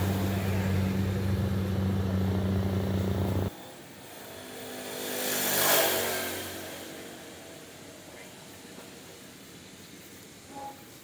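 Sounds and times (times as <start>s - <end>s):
combine harvester engine droning: 0.0s - 3.5s
quieter engine sound: 0.0s - 9.3s.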